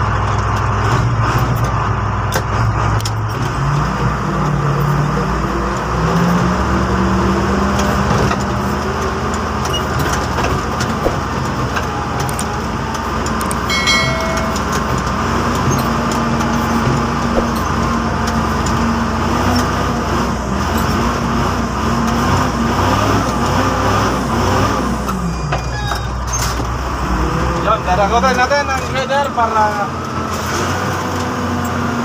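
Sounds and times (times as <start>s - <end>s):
diesel engine running: 0.0s - 32.0s
short high-pitched squeak: 25.4s - 26.5s.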